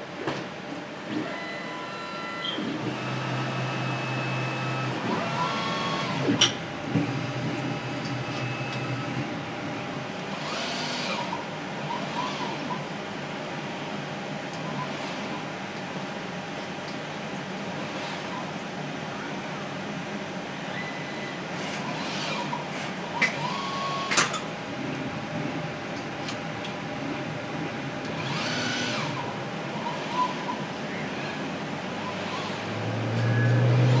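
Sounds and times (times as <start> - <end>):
robot motors whining: 1.1 - 6.4, 7.0 - 9.2, 28.2 - 30.6.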